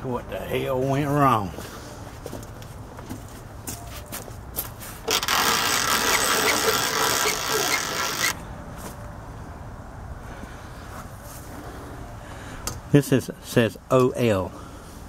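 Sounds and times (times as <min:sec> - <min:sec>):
harsh rustling scrape: 0:04.7 - 0:08.9.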